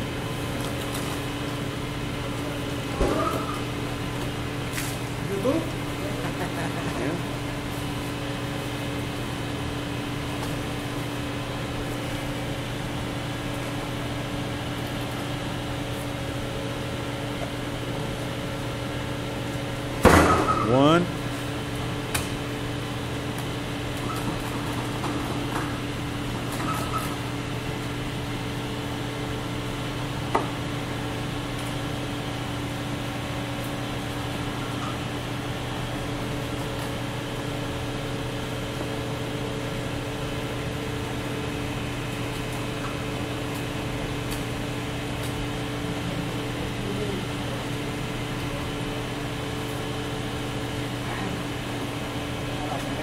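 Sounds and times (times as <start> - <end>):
machinery hum with higher tones: 0.0 - 53.0.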